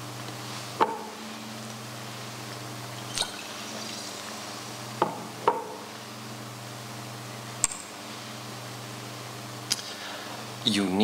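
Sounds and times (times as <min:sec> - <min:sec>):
low electrical hum: 0:00.0 - 0:11.0
sharp drip-like plinks: 0:03.1 - 0:03.6.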